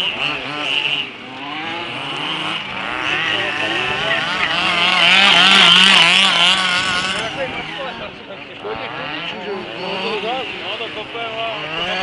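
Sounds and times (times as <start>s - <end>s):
model car engines revving: 0.0s - 12.0s.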